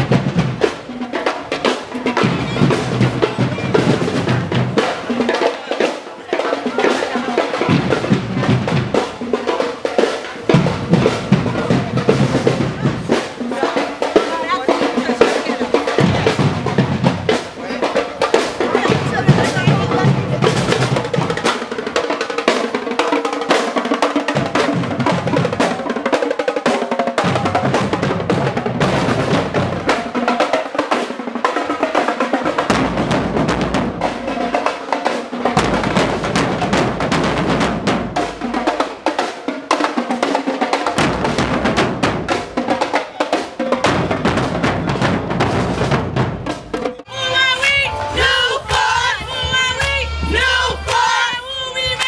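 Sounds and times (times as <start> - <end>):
bass drums: 0.0 - 0.9, 1.6 - 5.4, 7.4 - 22.0, 27.2 - 30.3, 32.4 - 34.5, 35.5 - 39.0, 40.9 - 43.0, 43.8 - 52.0
snare drums: 0.0 - 52.0.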